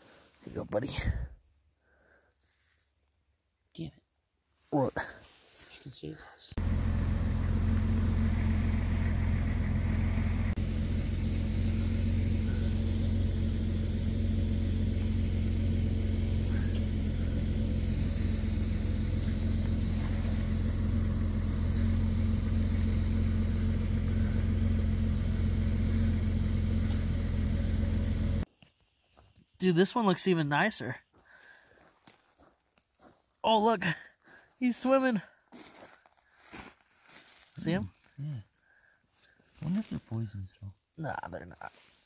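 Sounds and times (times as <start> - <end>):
engine idling: 6.5 - 28.5.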